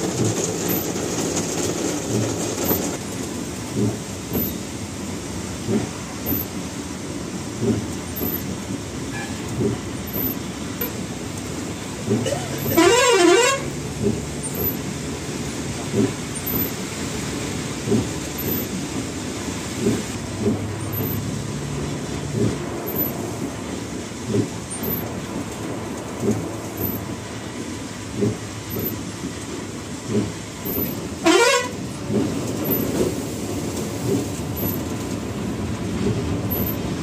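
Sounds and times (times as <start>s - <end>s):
road noise inside vehicle: 0.0s - 37.0s
steady rain: 0.0s - 37.0s
windscreen wipers knocking: 0.1s - 8.8s, 9.4s - 37.0s
rising horn toot: 12.4s - 13.7s, 31.2s - 31.8s.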